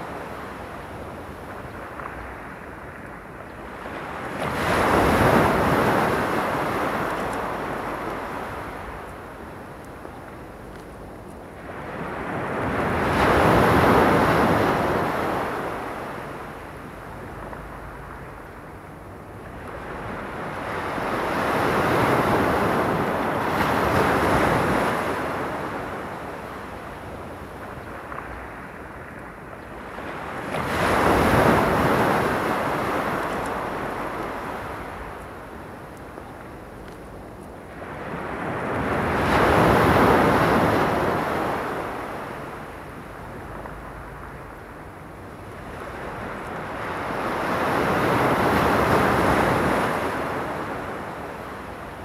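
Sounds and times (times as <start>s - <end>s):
sea waves washing ashore: 0.0s - 52.0s.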